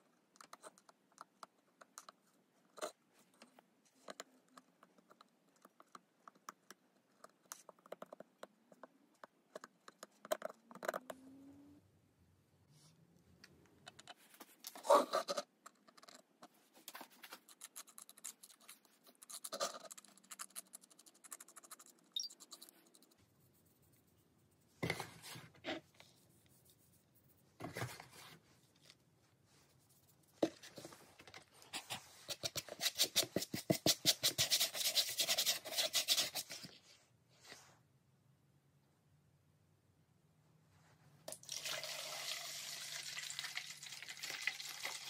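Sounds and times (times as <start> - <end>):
hands scratching plastic bucket: 31.7 - 36.7.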